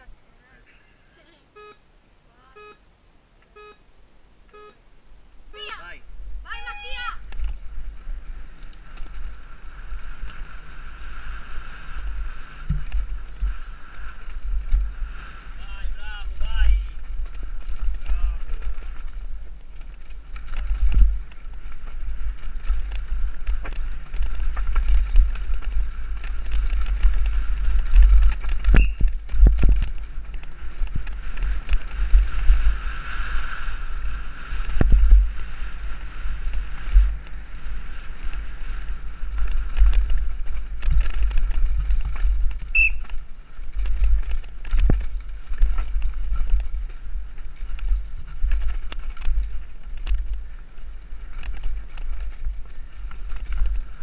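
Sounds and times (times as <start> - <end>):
wind buffeting microphone: 6.0 - 54.0
bike knocking and clattering: 11.6 - 14.9, 16.3 - 34.0, 38.2 - 54.0.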